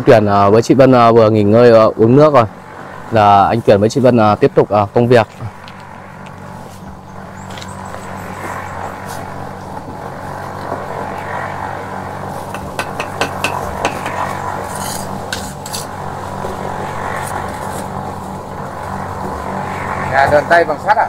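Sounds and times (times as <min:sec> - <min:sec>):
steady low hum: 0:00.0 - 0:21.0
trowel tapping on bricks: 0:12.5 - 0:14.2
trowel scraping mortar: 0:12.5 - 0:16.0.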